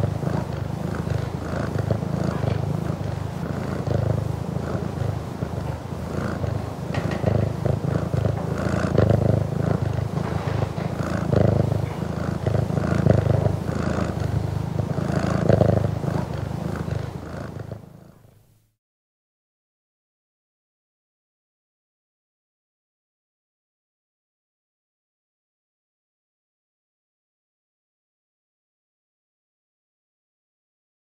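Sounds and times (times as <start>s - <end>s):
cat purring: 0.0s - 18.5s.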